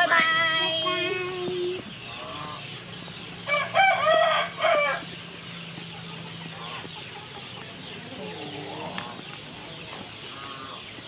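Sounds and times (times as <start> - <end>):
rooster crowing: 3.5 - 5.0.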